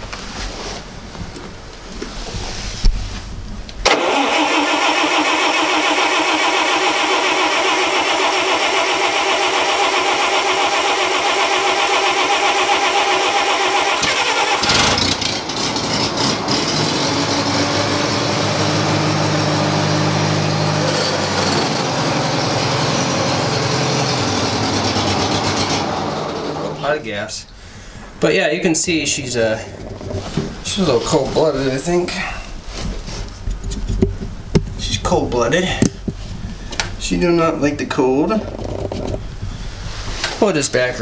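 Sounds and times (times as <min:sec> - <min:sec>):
engine running steadily: 0:03.8 - 0:26.8
engine cranking on starter: 0:03.8 - 0:26.9.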